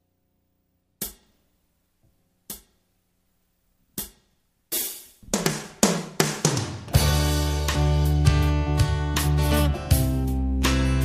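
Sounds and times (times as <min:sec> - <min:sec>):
music: 0:00.4 - 0:11.0
hi-hat ticks: 0:01.0 - 0:01.4, 0:02.5 - 0:02.8, 0:04.0 - 0:05.2
quick drum hits: 0:04.8 - 0:07.4.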